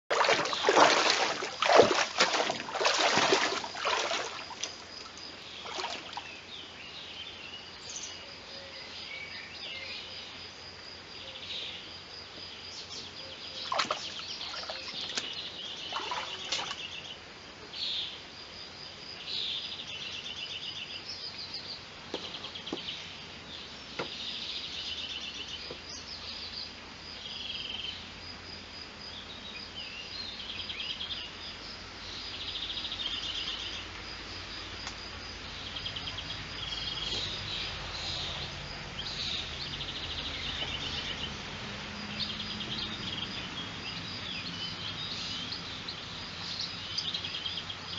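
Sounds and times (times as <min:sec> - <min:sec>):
stream rushing: 0:00.0 - 0:05.0
boots splashing through stream: 0:00.1 - 0:06.4, 0:13.6 - 0:16.9
small birds singing: 0:00.1 - 0:18.2, 0:19.1 - 0:28.1, 0:29.1 - 0:47.9.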